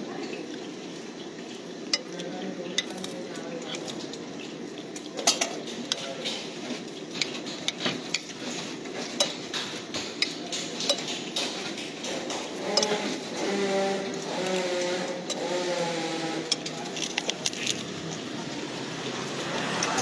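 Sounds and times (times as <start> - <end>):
steady background noise: 0.0 - 20.0
metal spoon scraping a plate: 12.2 - 17.0.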